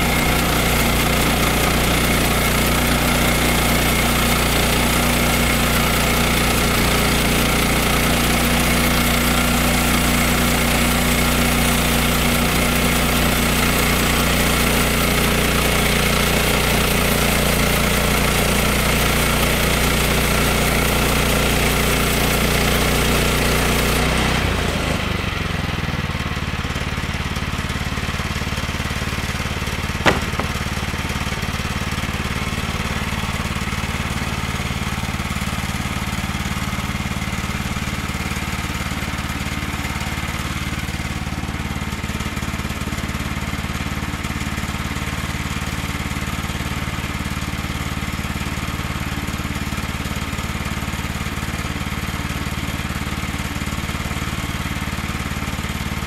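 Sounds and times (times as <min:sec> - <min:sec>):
sawmill engine running: 0:00.0 - 0:17.7
sharp click: 0:30.1 - 0:30.6
band saw blade sawing log: 0:30.1 - 0:30.7.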